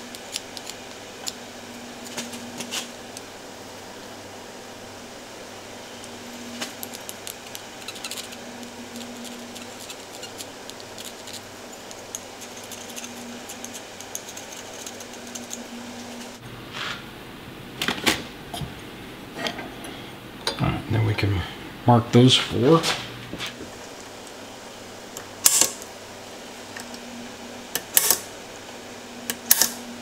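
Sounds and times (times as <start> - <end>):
steady hum: 0.0 - 30.0
metallic clicks and scratches: 6.6 - 16.4.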